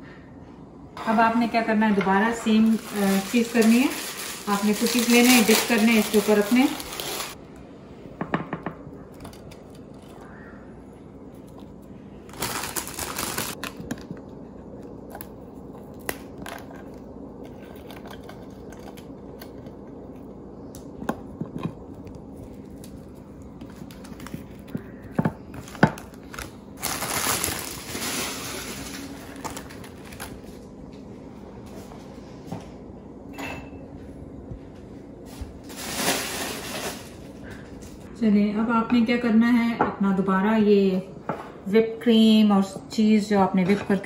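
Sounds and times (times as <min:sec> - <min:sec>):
steady low hum: 0:00.0 - 0:44.0
plastic packaging crinkling: 0:02.3 - 0:07.4, 0:12.2 - 0:14.2, 0:21.9 - 0:30.6, 0:35.7 - 0:37.4.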